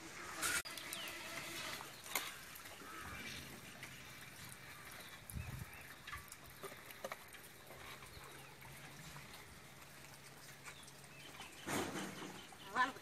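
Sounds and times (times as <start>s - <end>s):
wet mud tipped into metal trailer: 11.4s - 12.6s.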